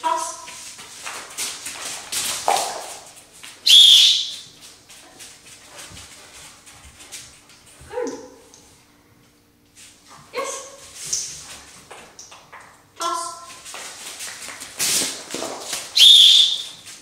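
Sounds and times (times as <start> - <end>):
dog whistle blast: 3.7 - 4.4, 16.0 - 16.8.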